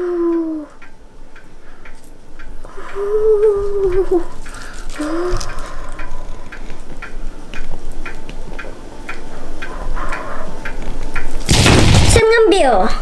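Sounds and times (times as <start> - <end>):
clock-like ticks: 0.0 - 11.5.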